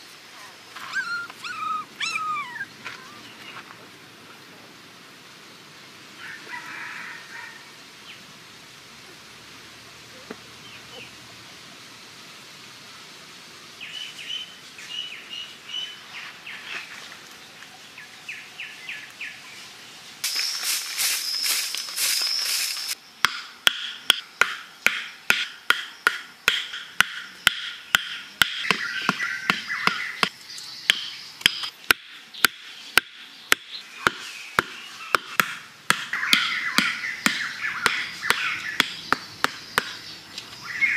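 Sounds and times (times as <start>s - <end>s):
birds chirping: 0.4s - 4.5s, 23.9s - 40.9s
wooden stakes hammered into ground: 23.2s - 40.1s.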